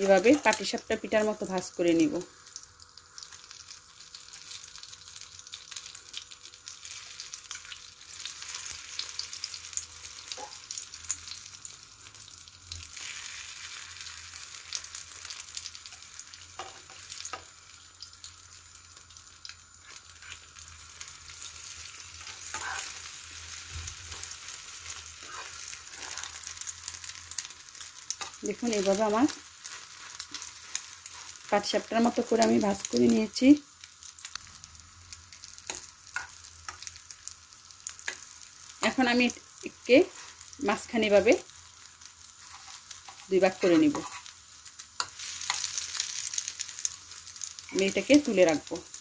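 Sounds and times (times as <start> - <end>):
omelette sizzling in a pan: 0.0 - 49.0
fork tapping and scraping pan: 42.5 - 44.3.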